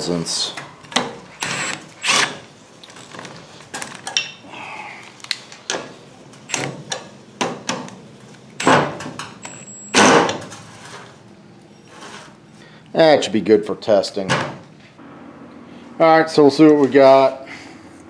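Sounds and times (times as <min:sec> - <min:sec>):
impact wrench bursts: 0:01.4 - 0:02.4.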